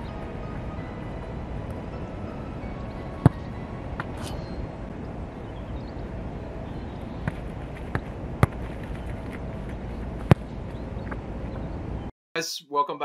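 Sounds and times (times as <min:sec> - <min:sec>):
football being struck and bouncing: 0:03.2 - 0:03.4, 0:07.2 - 0:09.4, 0:10.2 - 0:11.2.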